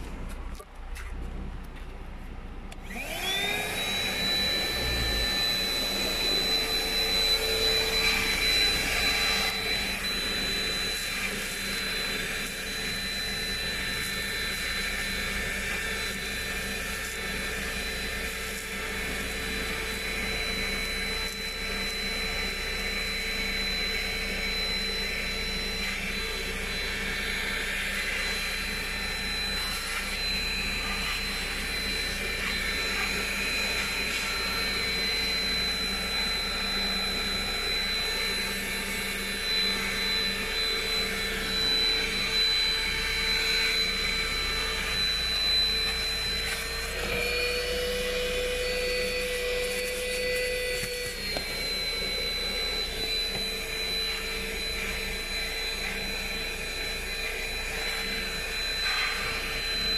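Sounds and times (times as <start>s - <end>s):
vacuum cleaner motor whining: 2.7s - 59.9s
vacuum nozzle on rubber mat: 2.7s - 59.9s.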